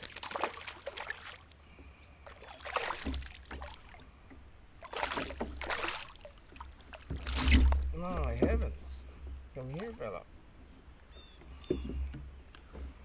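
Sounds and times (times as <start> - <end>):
fish splashing in water: 0.0 - 4.2, 4.8 - 8.0.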